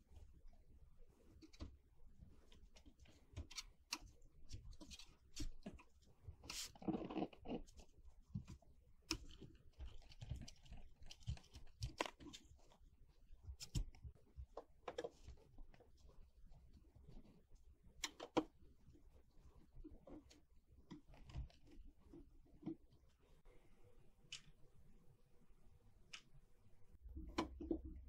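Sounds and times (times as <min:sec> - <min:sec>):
hand brushing crumbs: 0:06.4 - 0:07.0.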